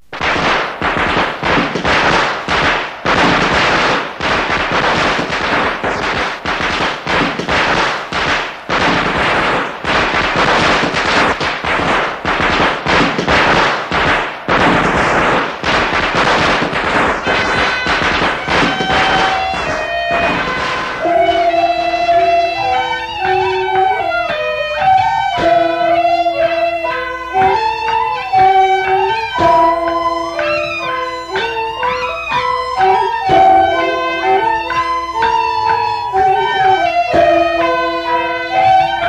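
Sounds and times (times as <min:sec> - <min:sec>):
firecrackers cracking: 0:00.0 - 0:39.0
wind instrument held notes: 0:17.2 - 0:39.0.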